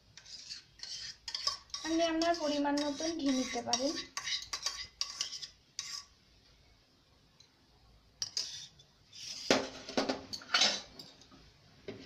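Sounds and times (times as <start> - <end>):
spoon clinking and scraping metal pot: 0.2 - 6.1, 8.2 - 11.3.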